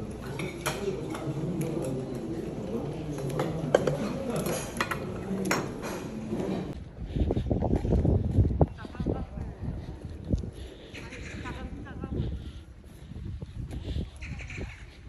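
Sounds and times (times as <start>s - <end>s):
low background chatter: 0.0s - 6.8s
cutlery clinking against dishes: 0.3s - 2.0s, 3.2s - 6.2s.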